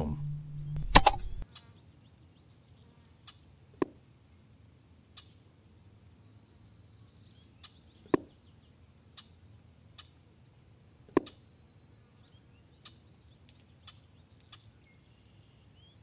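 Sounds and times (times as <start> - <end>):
air rifle shots: 0.0 - 1.4
birds chirping: 0.0 - 1.4.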